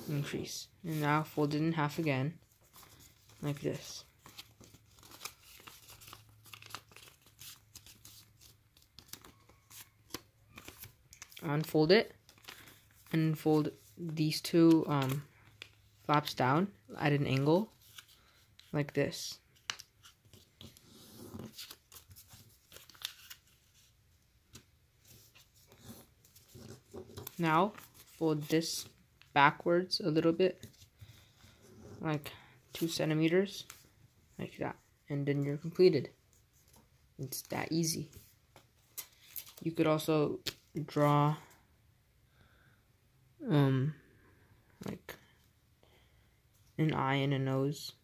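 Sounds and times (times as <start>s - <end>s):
paper rustling and crinkling: 2.4s - 11.5s, 12.1s - 14.1s, 14.7s - 16.1s, 17.2s - 18.8s, 19.4s - 29.0s, 36.3s - 39.7s.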